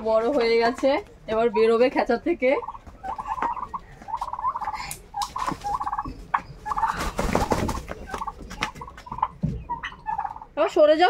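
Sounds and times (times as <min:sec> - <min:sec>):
turkeys gobbling: 0:00.2 - 0:10.7
wings flapping: 0:02.9 - 0:09.6.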